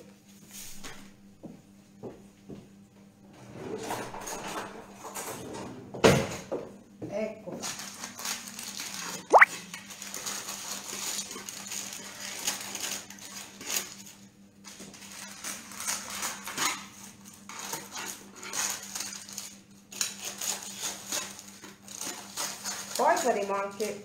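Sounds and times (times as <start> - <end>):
baking parchment crinkling: 9.9 - 14.0, 14.8 - 23.9.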